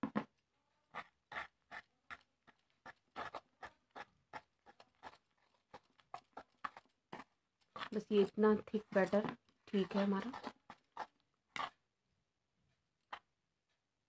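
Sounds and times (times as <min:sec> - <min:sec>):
whisk scraping batter in bowl: 0:00.8 - 0:11.9.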